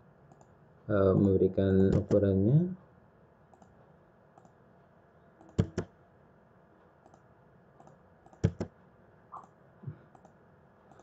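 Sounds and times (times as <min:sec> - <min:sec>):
computer mouse clicks: 0:00.3 - 0:00.5, 0:03.5 - 0:03.8, 0:04.4 - 0:04.6, 0:05.4 - 0:05.9, 0:07.0 - 0:07.2, 0:07.8 - 0:11.0.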